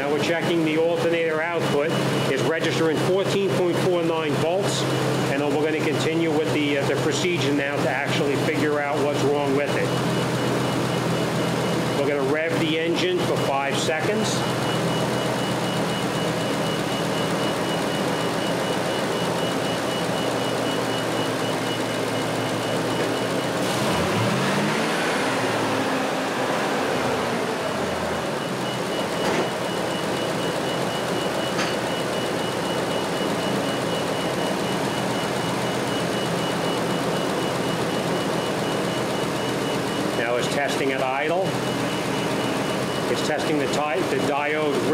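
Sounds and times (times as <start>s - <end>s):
car engine revving: 22.8s - 30.4s.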